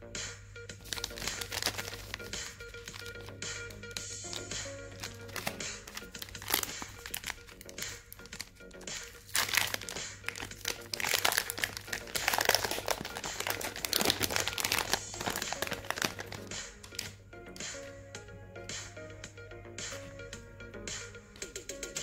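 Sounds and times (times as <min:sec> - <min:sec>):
background music: 0:00.0 - 0:22.0
foil wrapper crinkling: 0:00.8 - 0:17.1.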